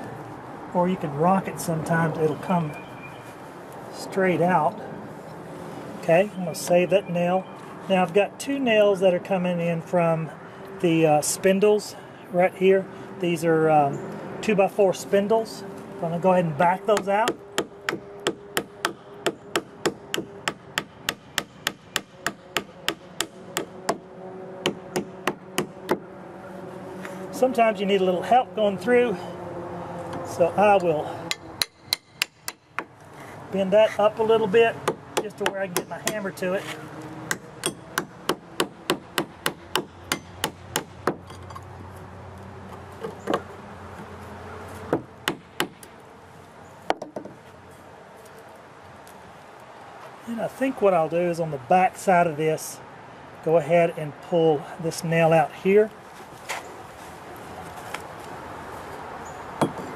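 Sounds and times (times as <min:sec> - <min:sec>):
hammer striking nails in wood: 0:17.0 - 0:24.0, 0:31.3 - 0:32.9, 0:37.3 - 0:41.4
hammer knocking on wood: 0:59.6 - 0:59.9.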